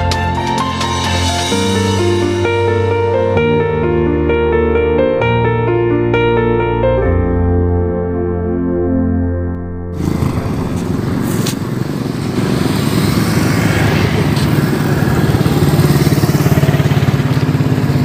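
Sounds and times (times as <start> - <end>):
piano music: 0.0 - 12.6
motorcycle engines: 9.9 - 18.0.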